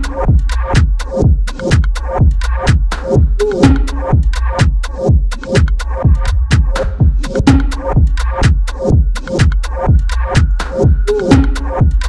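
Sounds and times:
electronic dance music: 0.0 - 12.0
hi-hat ticks: 0.0 - 12.0
kick drum thudding: 0.3 - 10.5.

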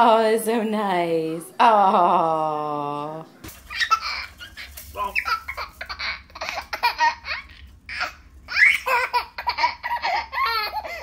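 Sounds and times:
baby laughing: 3.6 - 11.0.

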